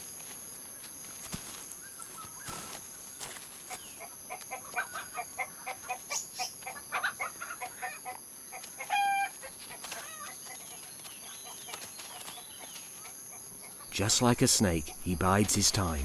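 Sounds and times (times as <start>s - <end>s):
chickens clucking: 3.7s - 16.0s
chicken drawn-out call: 3.9s - 10.7s.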